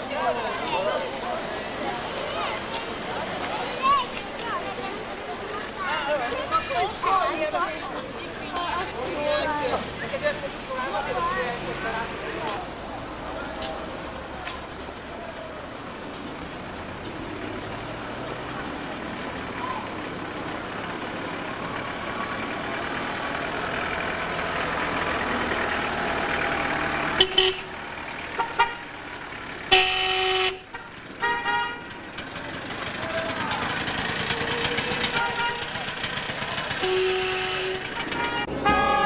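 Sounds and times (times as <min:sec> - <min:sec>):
voices: 0:00.0 - 0:29.7, 0:31.8 - 0:39.0
engine noise: 0:00.0 - 0:39.0
car horn honking: 0:27.2 - 0:28.9, 0:29.7 - 0:32.0, 0:35.0 - 0:35.8, 0:36.8 - 0:39.0.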